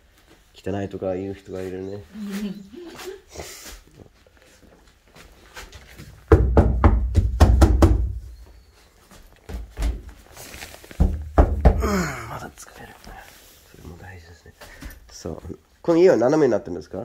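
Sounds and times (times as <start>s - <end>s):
hand knocking on wooden floorboards: 6.3s - 8.2s, 11.0s - 11.8s.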